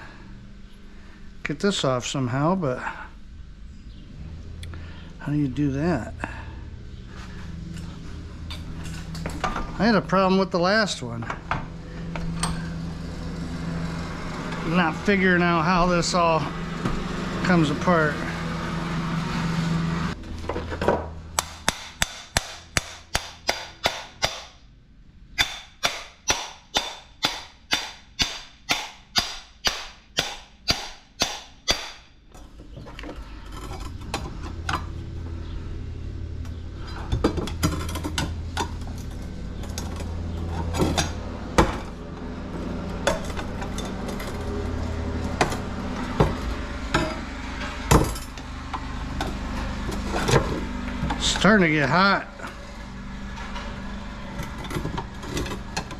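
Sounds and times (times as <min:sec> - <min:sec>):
low hum: 0:00.0 - 0:55.9
hammer striking metal: 0:21.4 - 0:24.6, 0:25.4 - 0:32.1.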